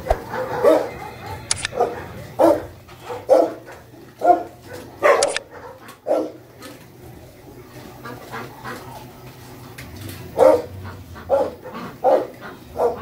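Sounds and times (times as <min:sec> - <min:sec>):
dogs barking: 0:00.0 - 0:06.7, 0:10.2 - 0:13.0.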